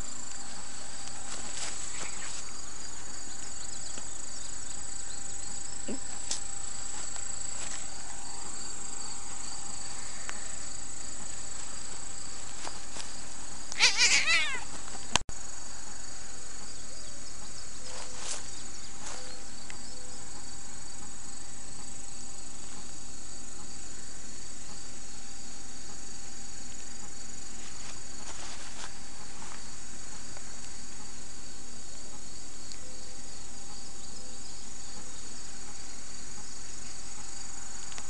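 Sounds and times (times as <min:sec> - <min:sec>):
crickets chirring: 0:00.0 - 0:38.0
cat meowing: 0:13.8 - 0:14.7.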